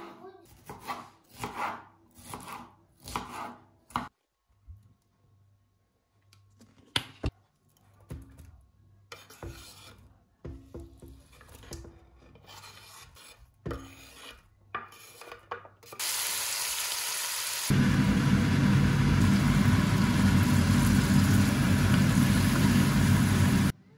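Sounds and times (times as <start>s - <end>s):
food scraped off a wooden board: 11.0s - 16.0s
food sizzling in hot oil: 16.0s - 23.7s.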